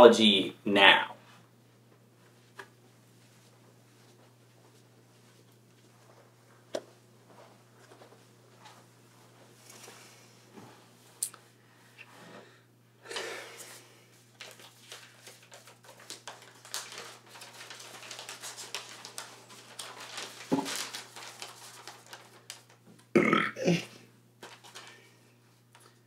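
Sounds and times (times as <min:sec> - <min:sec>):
paper rustling and crinkling: 0:13.6 - 0:23.1, 0:24.4 - 0:26.0
short throaty vocal sound: 0:23.2 - 0:23.9.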